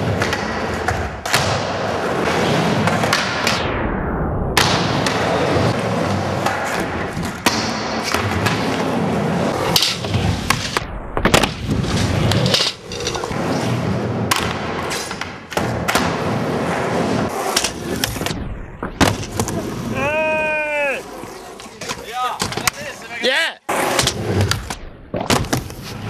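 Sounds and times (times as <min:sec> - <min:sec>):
skateboard wheels rolling: 0:00.0 - 0:03.6, 0:04.6 - 0:26.0
skateboard clacks and thuds: 0:23.8 - 0:26.0.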